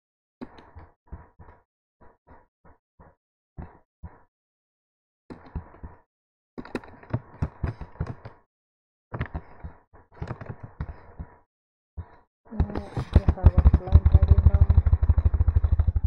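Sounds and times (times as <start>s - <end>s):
keyboard tapping: 12.6s - 16.0s.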